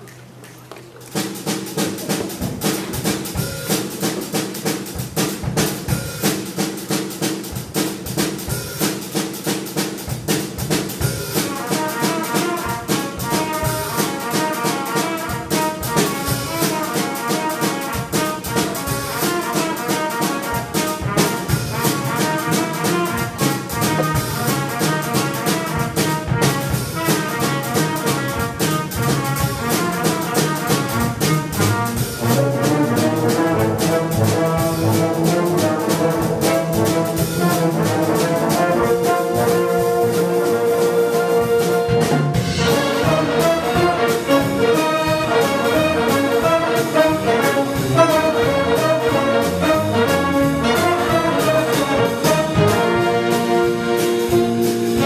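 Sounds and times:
jazz band drums and bass beat: 0.0 - 55.0
horn melody: 11.0 - 55.0.

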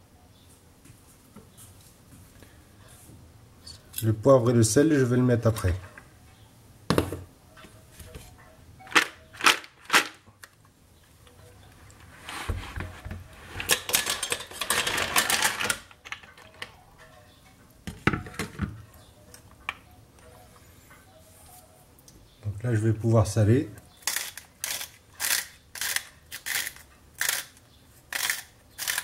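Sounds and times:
shells clattering into saucepan: 13.6 - 16.6.

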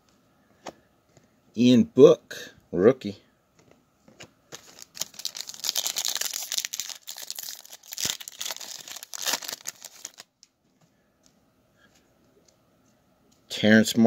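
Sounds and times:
foil wrapper tearing and crinkling: 4.5 - 10.4.

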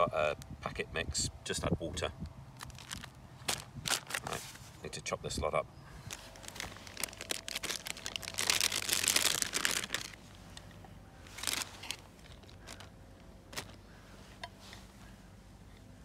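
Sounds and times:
plastic packaging crinkling: 2.6 - 4.4, 6.1 - 10.2, 11.3 - 13.8.

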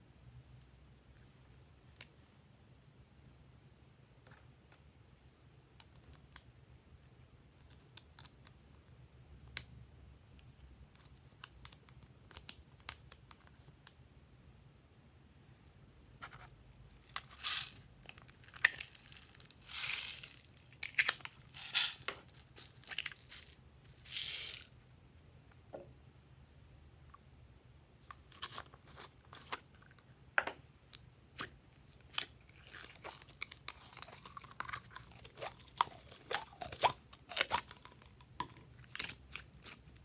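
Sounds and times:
plastic packaging tearing: 32.0 - 38.0.

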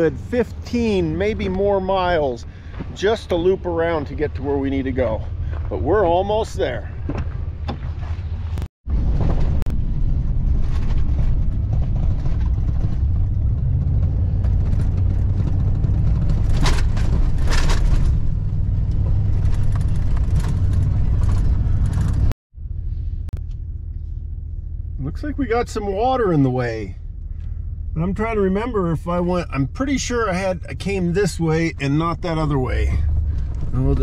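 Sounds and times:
truck engine and tyres rumbling: 0.0 - 34.0
knocks and rattles: 10.4 - 22.3.

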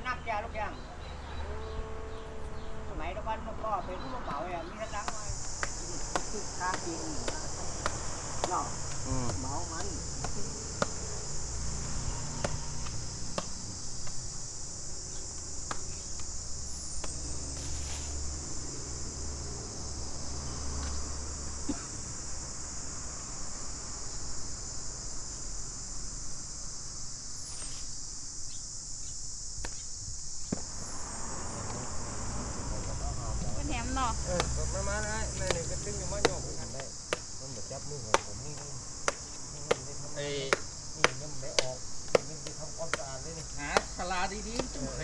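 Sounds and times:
insects droning: 0.0 - 45.0
sharp knocks and taps: 5.0 - 11.1, 12.4 - 14.2, 35.4 - 37.3, 38.1 - 39.9, 40.5 - 44.8.

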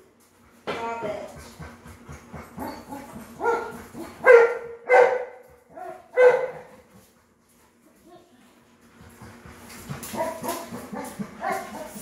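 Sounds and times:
dog barking: 3.4 - 6.7.

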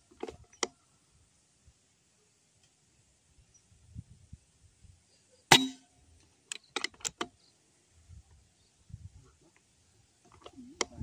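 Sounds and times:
air rifle shot: 5.5 - 5.8.

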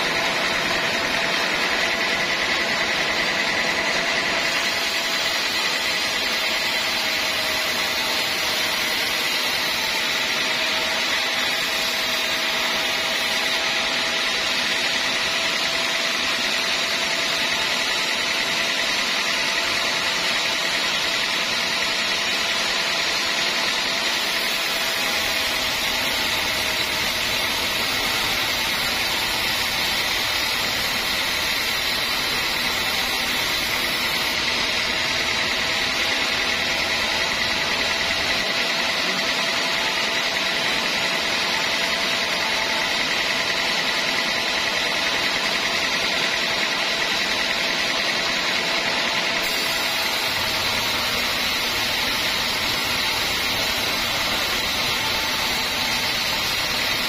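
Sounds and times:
band saw cutting wood: 0.0 - 57.0.

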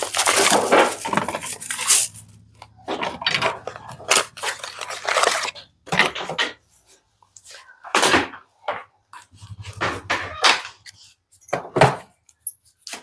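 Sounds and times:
hard plastic clattering: 0.0 - 6.8.

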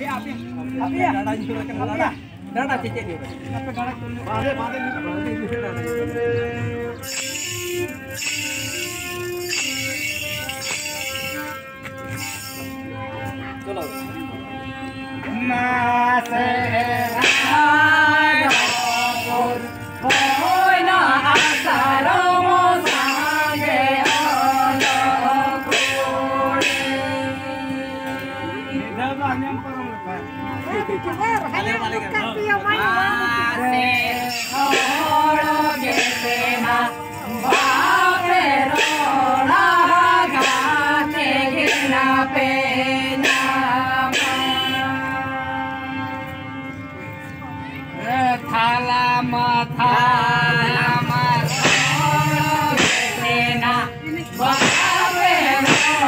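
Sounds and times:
harmonium reed chords: 0.0 - 56.0
men singing a folk song: 4.0 - 7.4, 15.2 - 29.0, 33.0 - 46.4, 48.0 - 56.0.

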